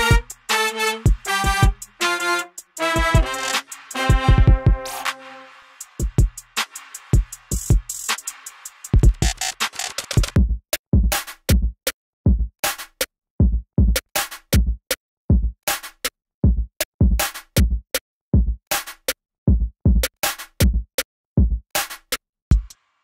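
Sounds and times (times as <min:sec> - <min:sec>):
electronic drum machine beat: 0:00.0 - 0:11.1, 0:22.5 - 0:22.8.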